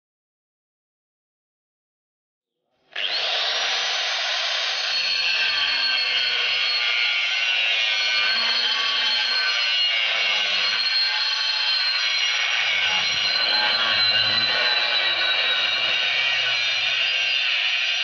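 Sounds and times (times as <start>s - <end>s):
angle grinder cutting steel: 3.0s - 18.0s.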